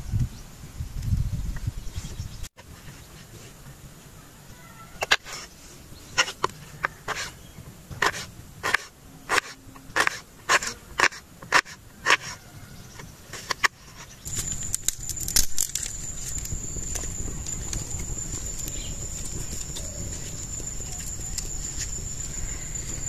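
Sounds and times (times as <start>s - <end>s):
high-pitched whine: 14.2s - 23.0s.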